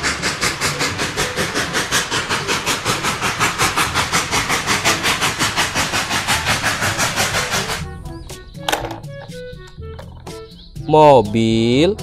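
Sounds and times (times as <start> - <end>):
steam hissing: 0.0 - 8.0
steam locomotive chuffing: 0.0 - 10.8.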